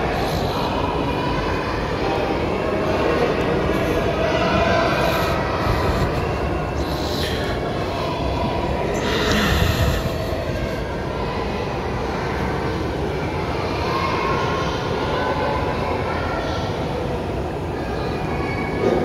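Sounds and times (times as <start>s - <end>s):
low rumbling noise: 0.0s - 15.1s.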